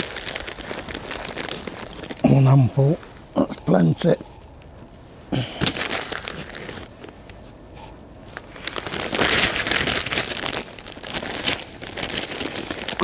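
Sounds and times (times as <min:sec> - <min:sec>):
plastic bag crinkling: 0:00.0 - 0:03.3, 0:05.4 - 0:07.1, 0:08.3 - 0:13.0.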